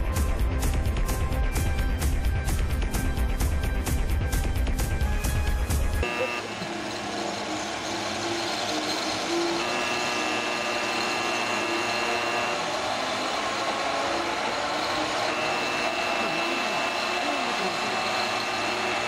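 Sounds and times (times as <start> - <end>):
faint high whine: 6.0 - 19.0
vehicle mechanical running noise: 6.0 - 19.0.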